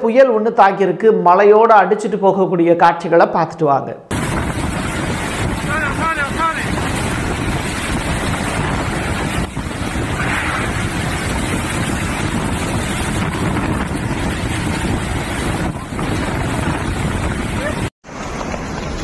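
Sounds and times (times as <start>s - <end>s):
heavy rain: 4.1s - 19.0s
storm-force wind: 4.1s - 19.0s.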